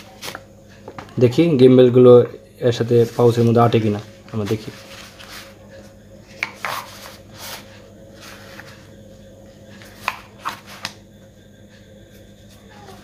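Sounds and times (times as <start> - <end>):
faint steady hum: 0.0 - 13.0
cloth rubbing and rustling: 2.9 - 5.8.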